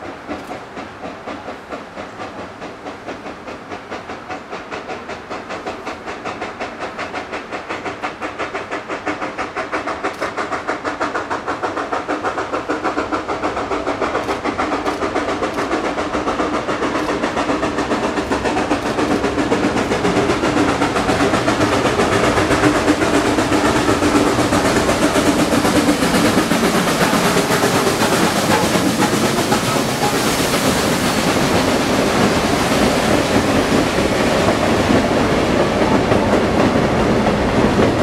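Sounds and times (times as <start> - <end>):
steam locomotive chuffing: 0.0 - 38.0.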